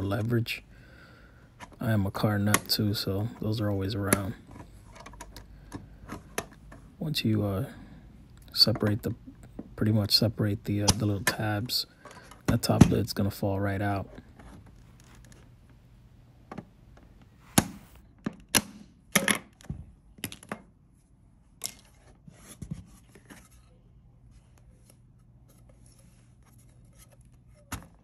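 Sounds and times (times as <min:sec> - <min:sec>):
faint handling noise: 0:08.3 - 0:18.2, 0:19.5 - 0:28.0.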